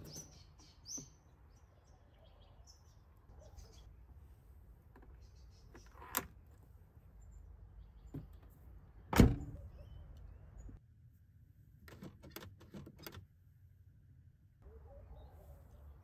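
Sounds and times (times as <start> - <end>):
car door slamming: 9.1 - 9.6.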